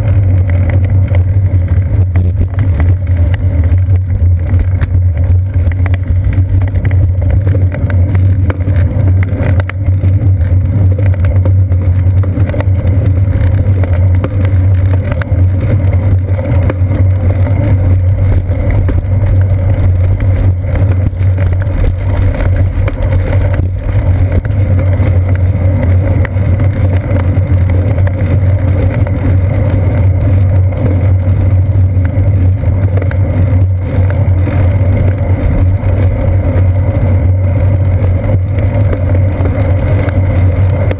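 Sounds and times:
bicycle frame vibration: 0:00.0 - 0:40.9
bicycle tyres rolling on pavement: 0:00.0 - 0:40.9
wind on microphone: 0:00.0 - 0:40.9.

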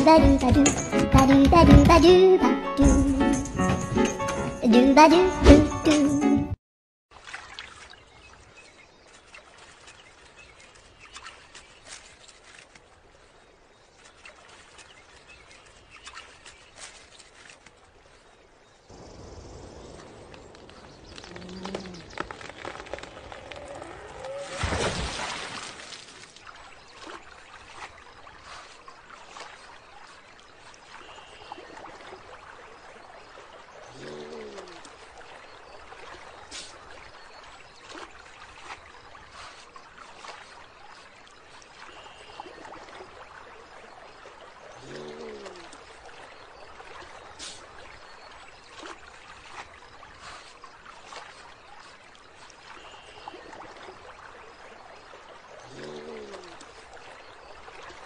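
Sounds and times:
trickling water: 0:07.1 - 0:58.0
faint clicks: 0:20.2 - 0:24.1.

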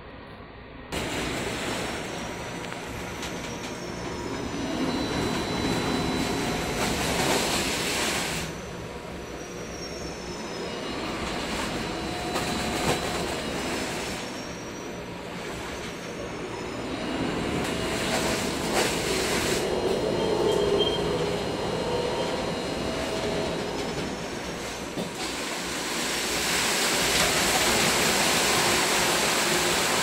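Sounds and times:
high metallic squeals: 0:01.8 - 0:07.9, 0:08.5 - 0:24.9.

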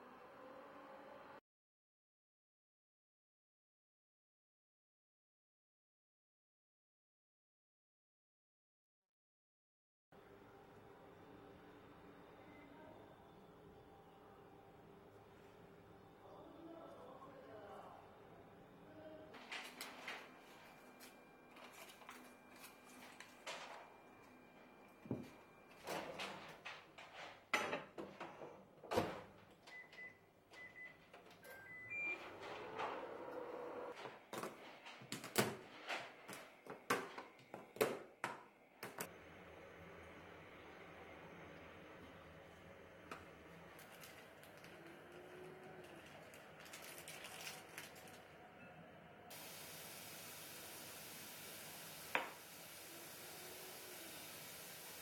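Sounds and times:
microwave running hum: 0:10.2 - 0:27.0, 0:27.6 - 0:34.3, 0:35.2 - 0:55.0
steady hiss: 0:49.3 - 0:55.0
glass cup set down on countertop: 0:52.0 - 0:52.4.

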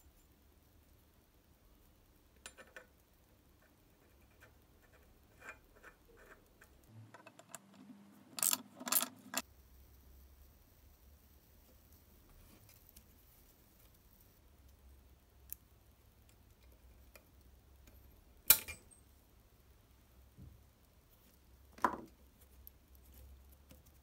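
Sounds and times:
metallic clink with ring: 0:18.5 - 0:19.1.

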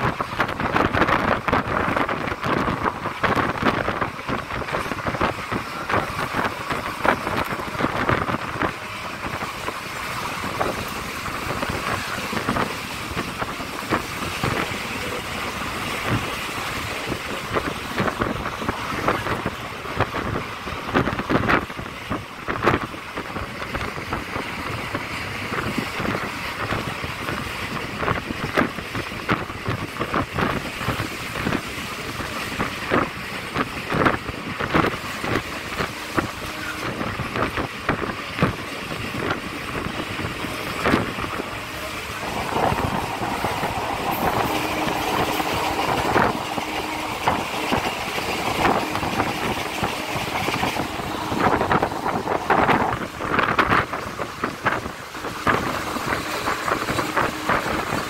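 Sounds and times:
train rumble and air rush: 0:00.0 - 0:58.0
wheels clanking and knocking: 0:00.0 - 0:58.0.

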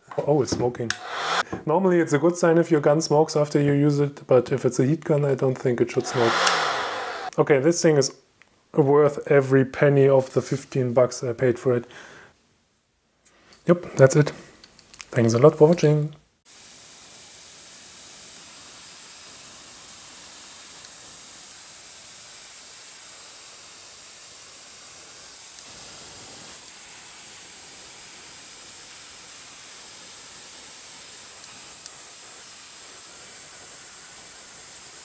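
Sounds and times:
heat gun blowing hot air: 0:00.9 - 0:01.6, 0:05.9 - 0:07.4.

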